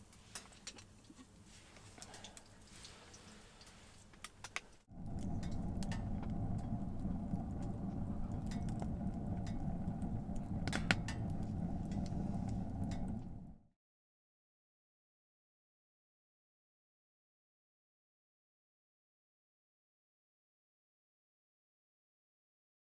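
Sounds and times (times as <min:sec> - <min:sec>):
wood fire crackling in stove: 0:00.0 - 0:13.7.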